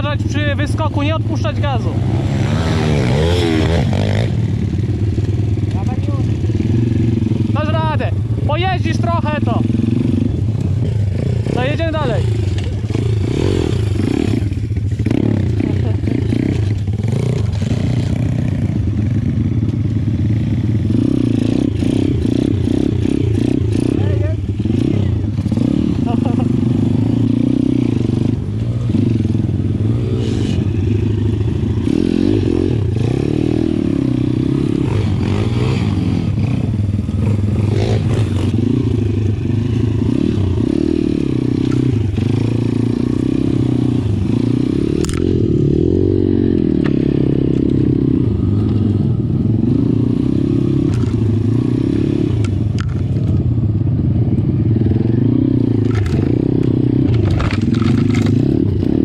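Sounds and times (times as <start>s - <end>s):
pitbike engine revving: 0.0s - 53.0s
bike knocks and rattles: 57.0s - 58.6s.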